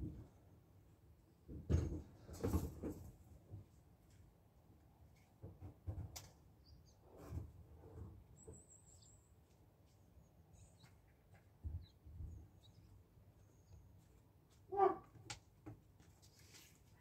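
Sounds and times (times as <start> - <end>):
distant bird chirps: 8.3 - 14.1.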